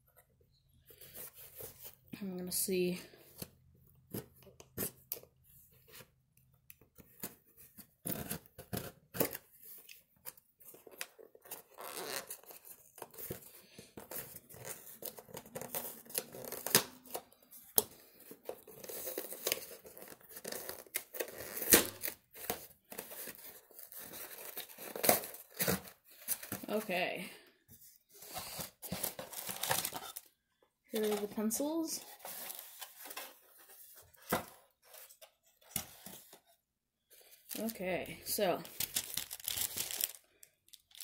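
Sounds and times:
packing material tearing and rustling: 0:10.7 - 0:13.5, 0:14.1 - 0:26.8, 0:28.2 - 0:30.3, 0:30.9 - 0:33.9, 0:38.6 - 0:41.0
box clicks and scrapes: 0:28.1 - 0:30.3, 0:31.0 - 0:36.4.

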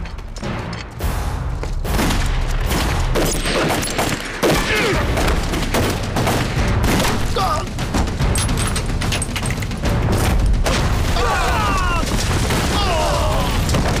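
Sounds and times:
rapid overlapping gunshots: 0:01.9 - 0:11.1.

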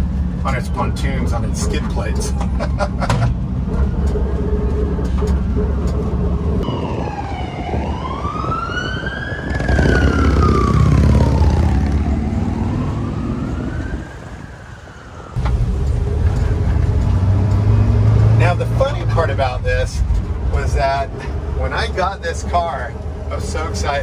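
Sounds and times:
vehicle engine running: 0:00.0 - 0:06.6, 0:15.4 - 0:24.0
siren wailing: 0:03.9 - 0:15.4.

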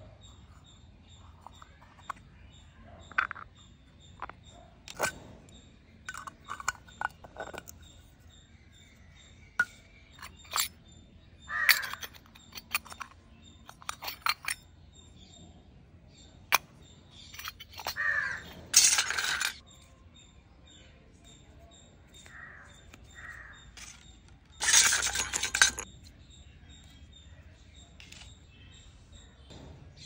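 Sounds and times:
small metal pots and lids clinking: 0:03.0 - 0:08.0, 0:09.6 - 0:10.8, 0:11.5 - 0:14.7, 0:16.5 - 0:19.7, 0:22.2 - 0:26.0.

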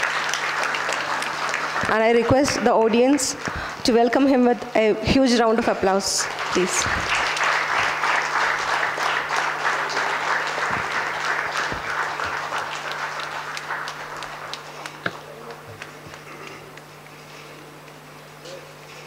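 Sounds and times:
audience applauding: 0:00.0 - 0:03.7, 0:06.1 - 0:16.5.

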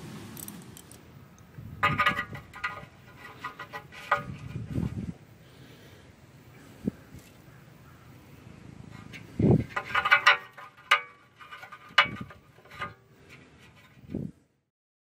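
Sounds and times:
metallic clanks: 0:01.8 - 0:04.6, 0:08.9 - 0:13.0.

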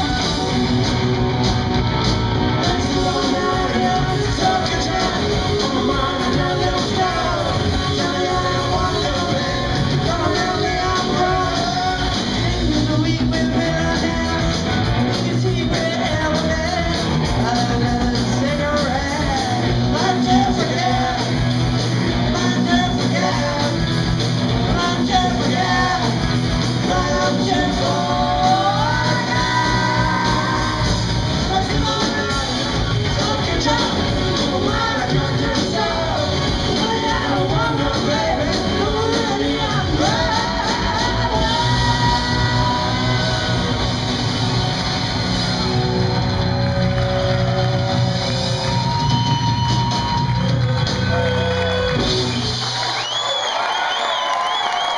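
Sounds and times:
electric bass: 0:00.0 - 0:53.0
electric guitar: 0:00.0 - 0:53.1
drum kit: 0:00.0 - 0:54.9
woman singing: 0:26.8 - 0:43.8.

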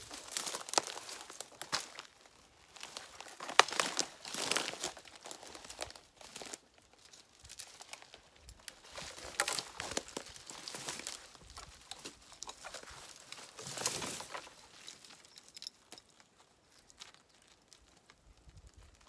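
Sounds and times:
twigs crackling underfoot: 0:00.0 - 0:19.0.

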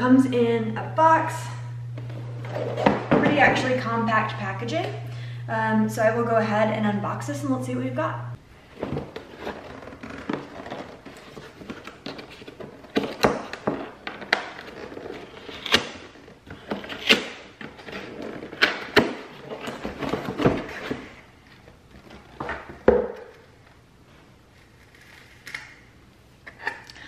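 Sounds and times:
cardboard scraping and rustling: 0:08.6 - 0:22.7.

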